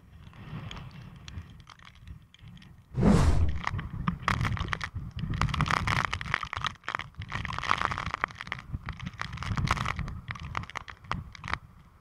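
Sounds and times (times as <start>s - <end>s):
raindrops ticking on camera: 0.2s - 2.9s, 3.7s - 12.0s
wind gusting on microphone: 3.0s - 5.9s.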